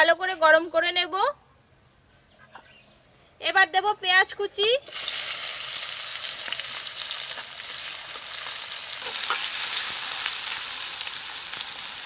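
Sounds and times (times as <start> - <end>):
onions sizzling in hot oil: 4.8 - 12.0.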